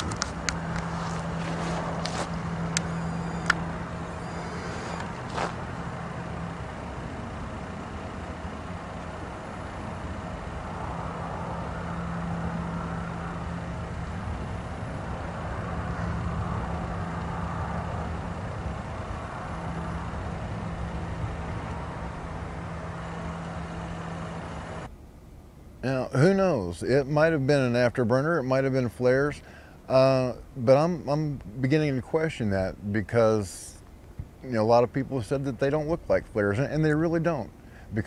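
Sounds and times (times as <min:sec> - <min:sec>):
distant roar: 0:00.0 - 0:24.9
low hum: 0:00.0 - 0:26.4.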